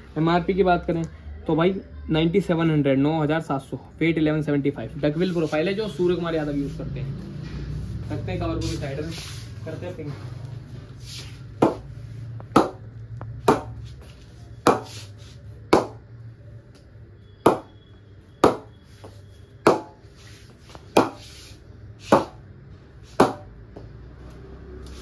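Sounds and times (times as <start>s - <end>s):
ball knocking on cricket bat: 11.6s - 12.8s, 13.4s - 13.8s, 14.6s - 14.9s, 17.5s - 17.7s, 18.4s - 18.7s, 19.6s - 20.0s, 20.9s - 21.2s, 22.1s - 22.4s, 23.2s - 23.5s.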